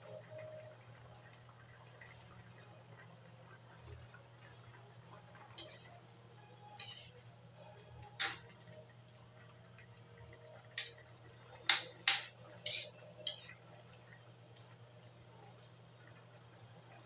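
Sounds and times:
low steady hum: 0.0s - 17.0s
metal ladle scraping a wok: 5.6s - 5.9s, 6.8s - 7.2s, 11.7s - 13.6s.

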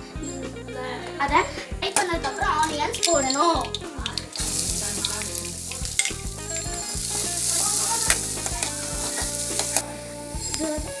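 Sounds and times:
onions sizzling in hot oil: 2.9s - 11.0s
steel spoon clicking on pan: 3.0s - 9.8s.

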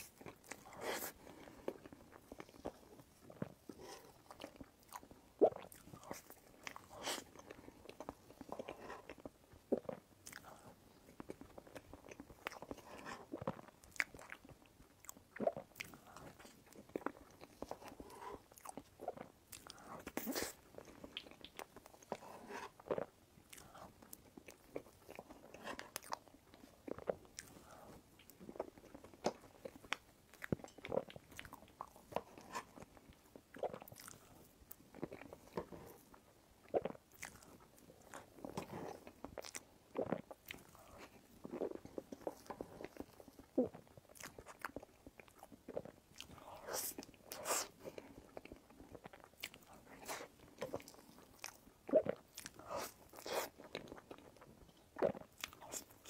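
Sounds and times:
wet chewing and lip smacks: 0.0s - 56.0s.

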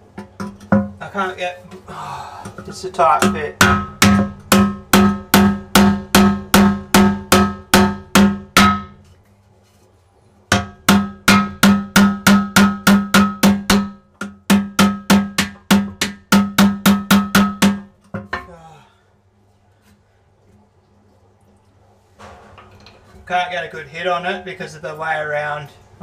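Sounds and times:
hammer striking steel chisel: 3.2s - 9.0s, 10.5s - 18.5s.

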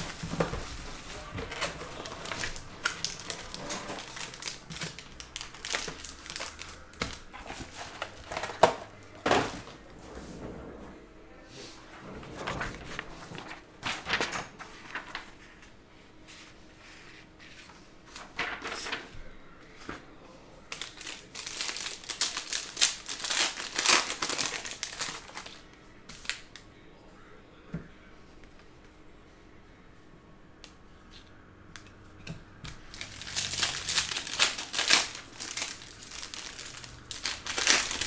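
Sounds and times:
foil pack crinkling and tearing: 0.0s - 8.8s, 20.7s - 26.5s, 32.8s - 38.0s.

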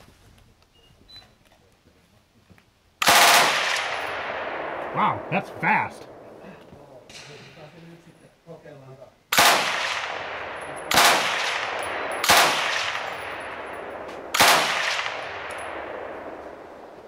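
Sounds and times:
machine gun firing: 3.0s - 4.8s, 9.3s - 16.3s
gunshot echo: 3.0s - 7.7s, 9.3s - 16.9s.

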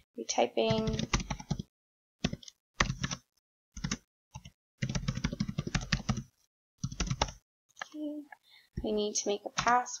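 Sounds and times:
typing on computer keyboard: 0.7s - 3.2s, 3.8s - 7.9s.

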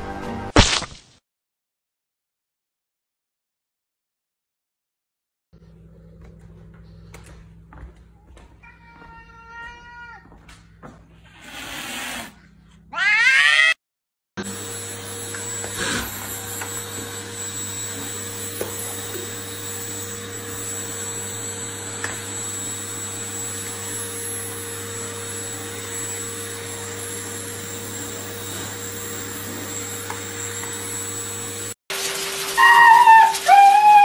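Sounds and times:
vacuum cleaner running: 10.3s - 12.5s, 14.4s - 34.0s.

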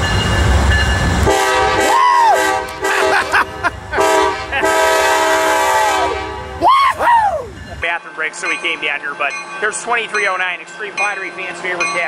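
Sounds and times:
locomotive rumble: 0.0s - 7.8s
train horn blasts: 1.2s - 3.2s, 4.0s - 6.6s.

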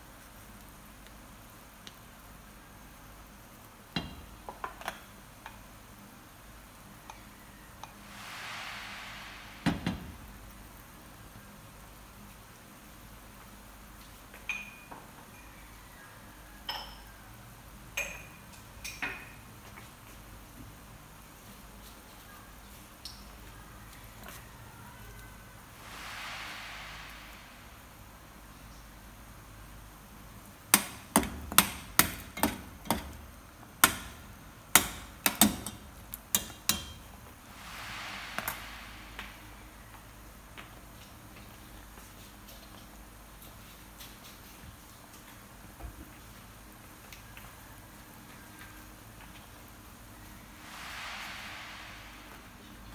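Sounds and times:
soft hiss: 0.0s - 52.9s
soup bubbling in a pot: 25.1s - 44.0s.

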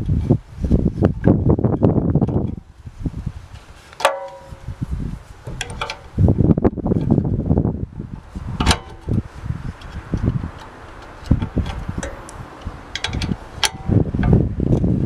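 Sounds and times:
spanner clicking on metal: 5.5s - 6.2s, 9.8s - 14.9s.

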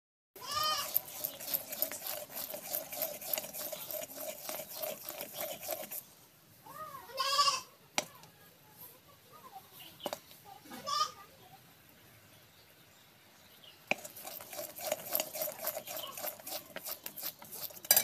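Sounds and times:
thick syrup bubbling and popping: 0.8s - 6.1s, 13.9s - 18.0s.

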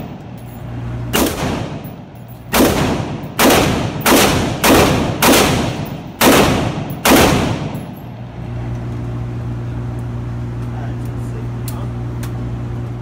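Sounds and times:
steady low hum: 0.0s - 13.0s
rifle shots echoing indoors: 1.1s - 8.0s.

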